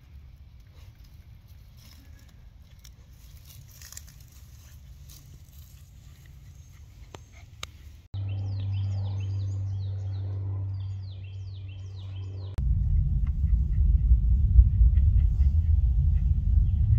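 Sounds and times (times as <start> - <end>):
steady low hum: 0.0 - 16.9
birds chirping: 5.4 - 16.9.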